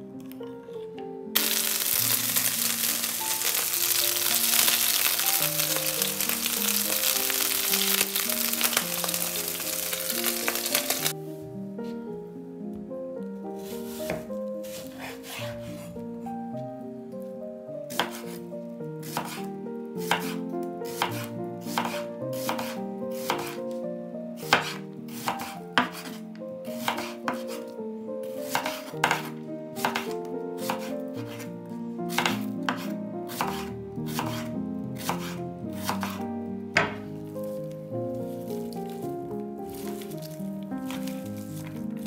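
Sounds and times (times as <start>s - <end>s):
soft background music: 0.0s - 42.0s
knife slicing on cutting board: 13.6s - 15.9s, 17.9s - 18.4s, 19.0s - 19.4s, 20.1s - 23.6s, 24.5s - 26.2s, 26.8s - 27.7s, 28.4s - 31.5s, 32.1s - 36.2s, 40.9s - 41.7s.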